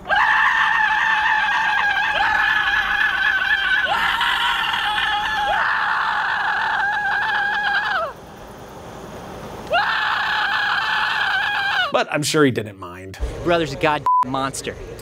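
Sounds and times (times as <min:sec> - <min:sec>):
man screaming high-pitched: 0:00.0 - 0:08.2, 0:09.7 - 0:12.0.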